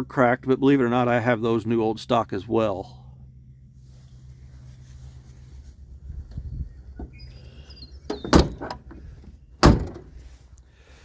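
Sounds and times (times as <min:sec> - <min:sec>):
bird chirp: 0:06.4 - 0:08.6
tailgate latch clacking: 0:08.1 - 0:09.0.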